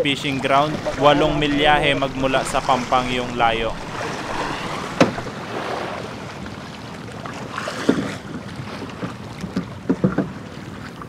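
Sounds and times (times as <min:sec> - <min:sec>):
wind buffeting microphone: 0:00.0 - 0:05.6.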